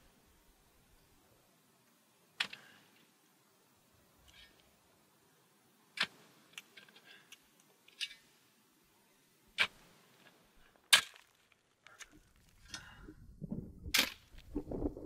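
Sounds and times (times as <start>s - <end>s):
shovel chopping into stony dirt: 6.0s - 6.2s, 9.6s - 9.8s, 10.9s - 11.4s, 13.9s - 14.3s.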